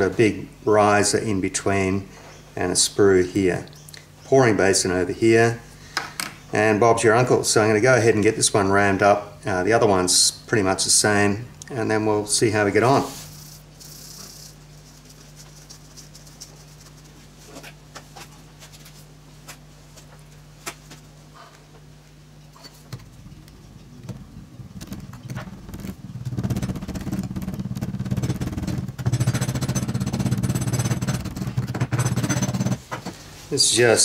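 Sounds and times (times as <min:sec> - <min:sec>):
steady low hum: 0:00.0 - 0:34.0
power rammer hammering: 0:26.4 - 0:33.2.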